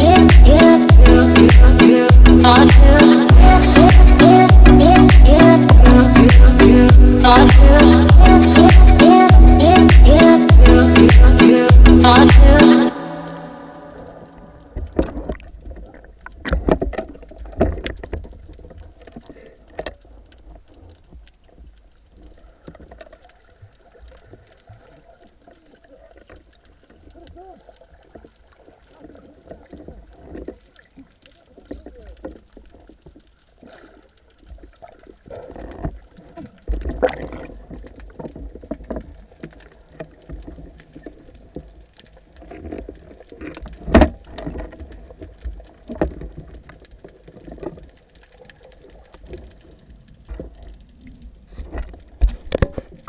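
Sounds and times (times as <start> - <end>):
muffled underwater rumble: 13.8 - 53.0
underwater knocks and clicks: 14.8 - 21.8, 29.0 - 33.8, 34.4 - 53.0.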